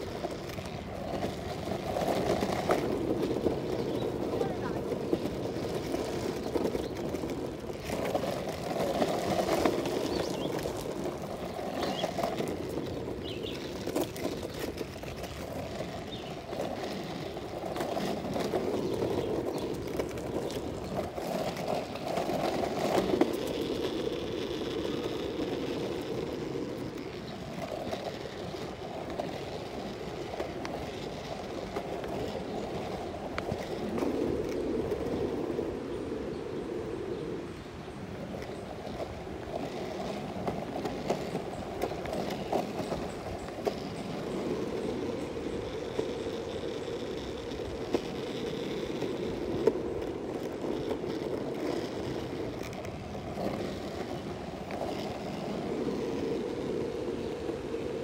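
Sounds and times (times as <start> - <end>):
longboard wheels rolling on pavement: 0.0 - 58.0.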